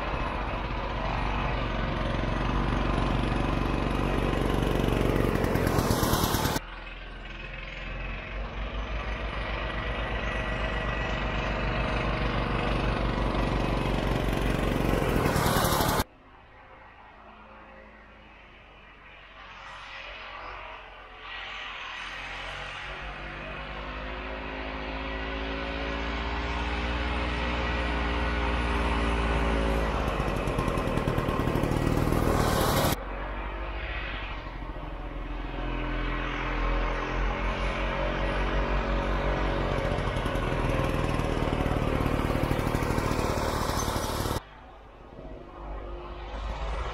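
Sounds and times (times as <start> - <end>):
snowmobile engine approaching: 0.0 - 46.9
hiss of wind and snow: 15.4 - 23.6.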